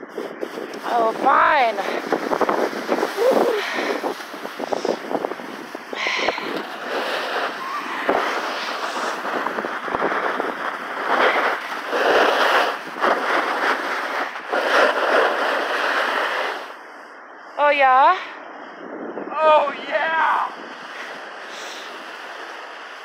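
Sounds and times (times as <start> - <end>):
ski edges scraping snow: 0.1 - 16.8, 20.0 - 23.0.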